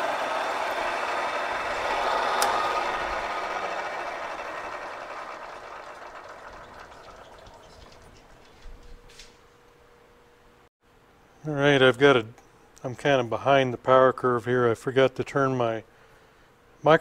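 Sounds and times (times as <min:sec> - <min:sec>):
milling machine spindle motor: 0:00.0 - 0:09.0.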